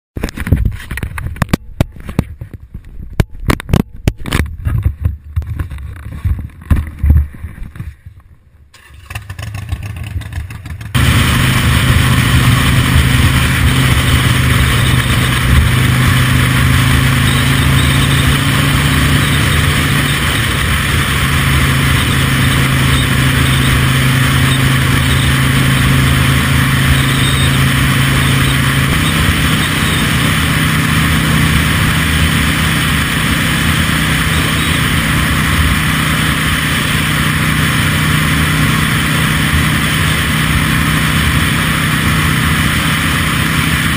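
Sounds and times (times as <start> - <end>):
motorcycle engine running: 8.8 - 43.9.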